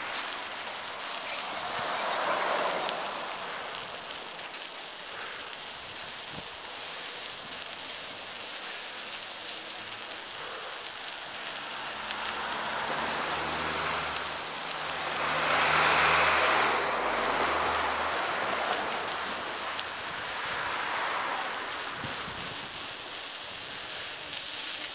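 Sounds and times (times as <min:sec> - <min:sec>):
truck engine passing: 0:00.0 - 0:04.4, 0:10.9 - 0:22.9
bicycle tyre noise: 0:00.0 - 0:24.9
wind noise: 0:05.8 - 0:06.7, 0:12.2 - 0:24.0.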